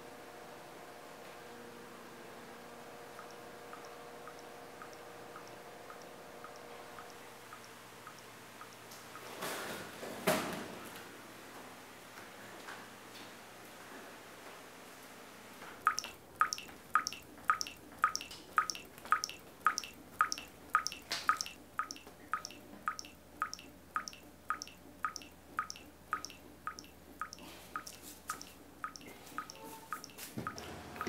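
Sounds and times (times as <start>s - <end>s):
water dripping: 3.1s - 9.3s, 15.8s - 30.7s.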